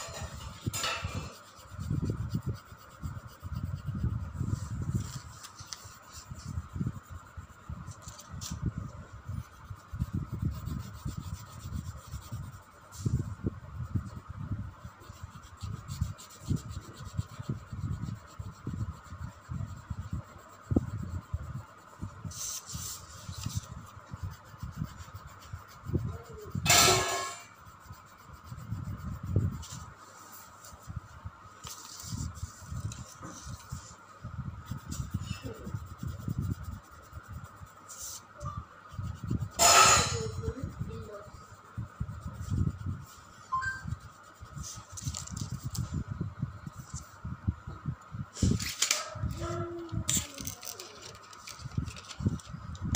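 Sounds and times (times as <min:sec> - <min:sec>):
coloured pencil scribbling on paper: 0:00.0 - 0:31.0, 0:34.6 - 0:46.0.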